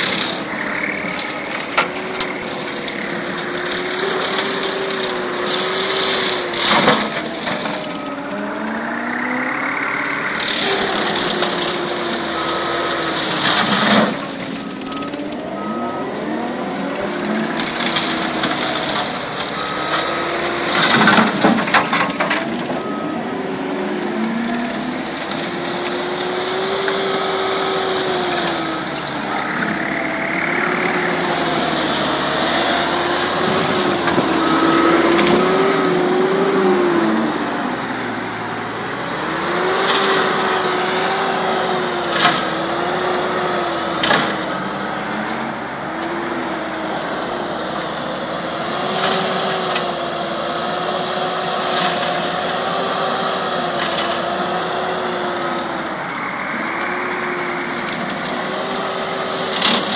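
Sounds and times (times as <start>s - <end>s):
brush cutter shredding brush: 0.0s - 59.9s
loader machine drone: 0.0s - 59.9s.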